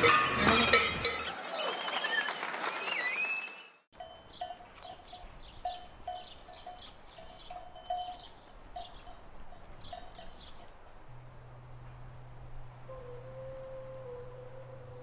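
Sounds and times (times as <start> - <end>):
livestock bell clanging: 0.0 - 2.0, 4.0 - 10.9.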